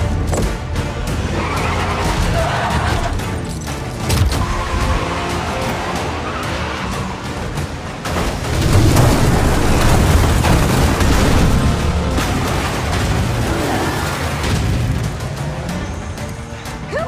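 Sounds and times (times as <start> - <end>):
dramatic film music: 0.0 - 17.0
heavy booms and metal impacts: 8.1 - 13.5.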